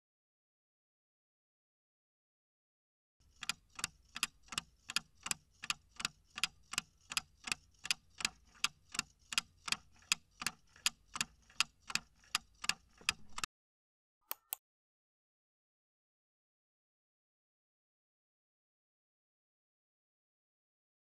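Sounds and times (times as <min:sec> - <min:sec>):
clock ticking: 0:03.2 - 0:13.5.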